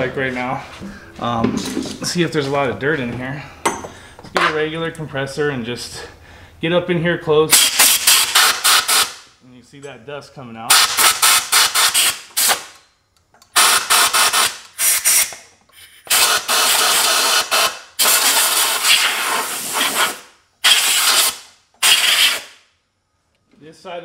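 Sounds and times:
compressed air blow gun blasts: 7.5s - 9.2s, 10.7s - 12.8s, 13.5s - 15.4s, 16.1s - 22.6s.

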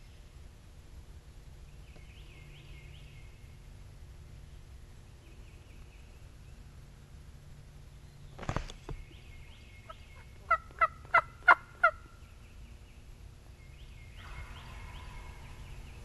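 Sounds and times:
rough drawn-out turkey call: 10.2s - 12.0s
turkey yelps: 10.4s - 12.0s.

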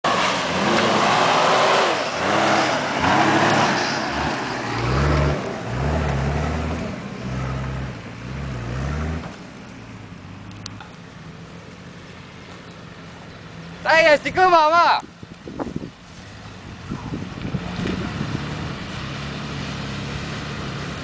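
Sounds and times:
engine revving: 0.0s - 9.5s, 17.3s - 21.0s.

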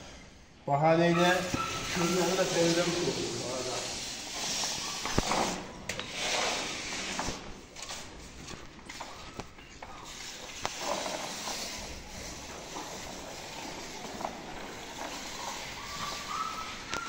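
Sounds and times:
broom scraping feed trough: 1.3s - 8.1s, 10.0s - 17.0s.

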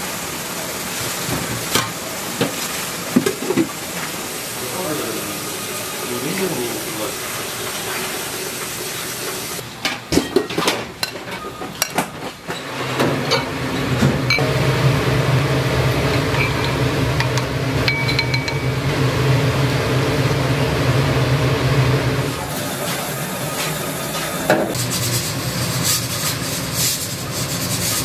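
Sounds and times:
low hum of kitchen equipment: 0.0s - 28.0s
metal and ceramic clattering: 9.9s - 14.4s, 16.1s - 18.8s.

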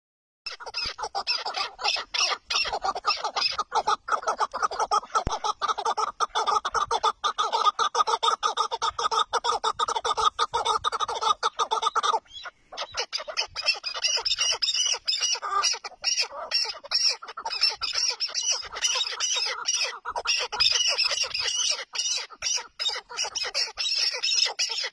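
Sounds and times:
partridges chattering calls: 0.5s - 24.9s.

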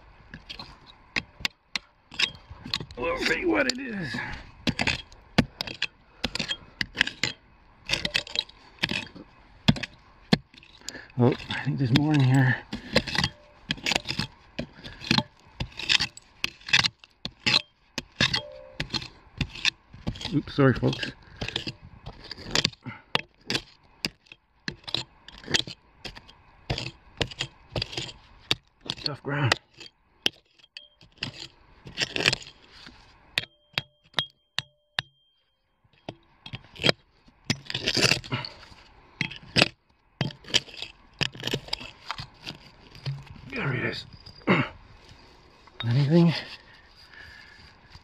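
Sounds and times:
hand pick scraping hard ground: 0.3s - 34.3s, 36.0s - 48.0s.

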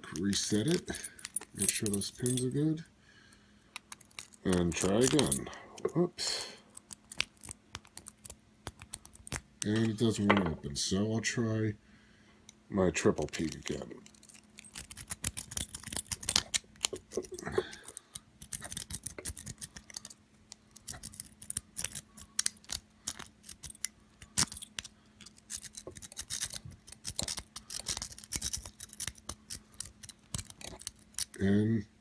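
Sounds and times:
lock pick clicking in padlock: 20.8s - 31.4s.

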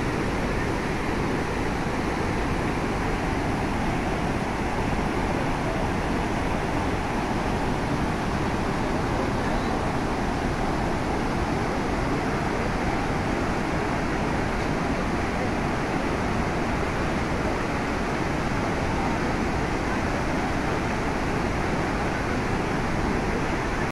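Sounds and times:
waterfall rushing: 0.0s - 23.9s.

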